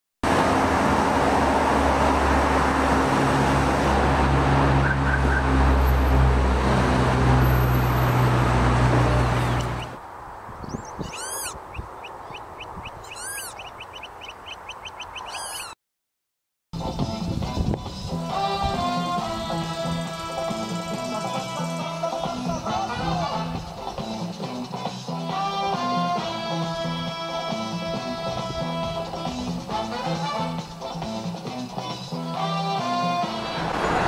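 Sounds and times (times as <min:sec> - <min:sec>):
street traffic with engine hum: 0:00.2 - 0:15.8, 0:16.8 - 0:34.0
small birds singing: 0:09.4 - 0:15.8, 0:19.8 - 0:22.7.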